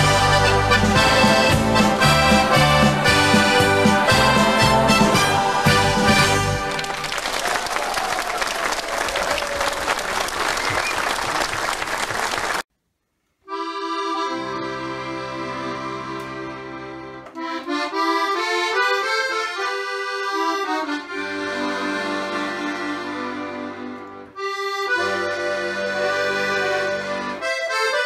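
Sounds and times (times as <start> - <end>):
accordion music: 0.0 - 7.2, 13.5 - 28.0.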